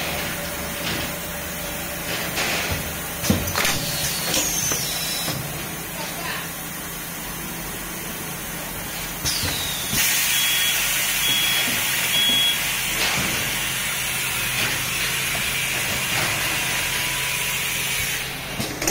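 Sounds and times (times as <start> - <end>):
loud hiss of air: 9.1 - 13.0
short high beeps: 10.3 - 12.6.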